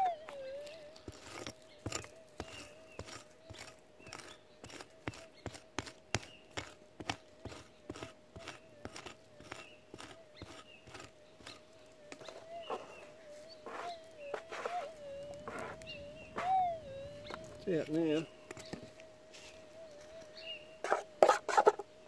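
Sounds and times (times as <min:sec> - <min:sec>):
metal detector hum: 0:12.1 - 0:21.8.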